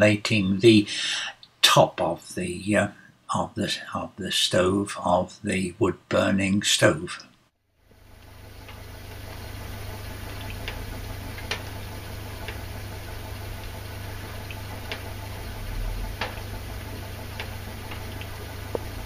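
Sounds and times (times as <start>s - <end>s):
engine low hum: 7.8s - 19.0s.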